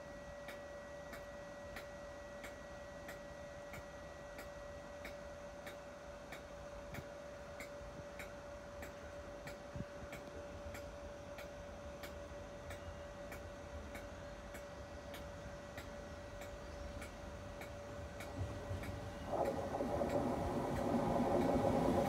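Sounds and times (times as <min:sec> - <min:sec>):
steady ticking: 0:15.1 - 0:22.0.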